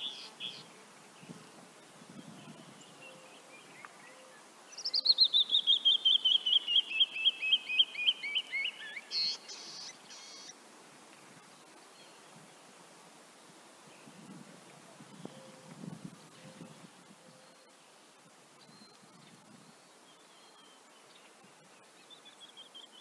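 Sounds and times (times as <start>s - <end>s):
wren whistled song: 4.8s - 10.5s.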